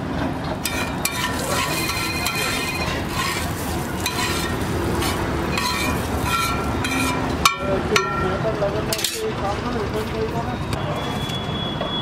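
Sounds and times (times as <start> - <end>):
metal utensils scraping griddle: 0.6 - 8.2, 8.9 - 9.4
frying sizzle: 0.7 - 7.4.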